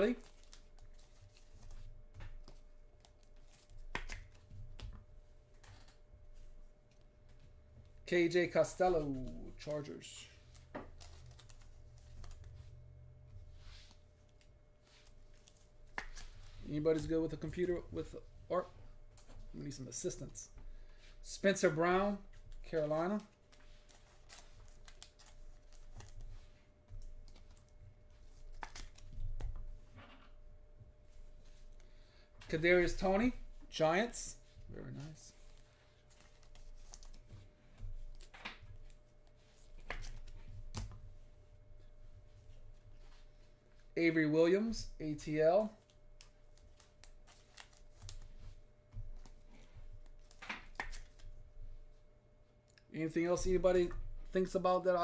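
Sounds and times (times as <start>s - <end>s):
card handling rustles and clicks: 0.0s - 8.0s, 8.6s - 12.8s, 13.6s - 30.3s, 34.8s - 41.2s, 45.2s - 51.4s.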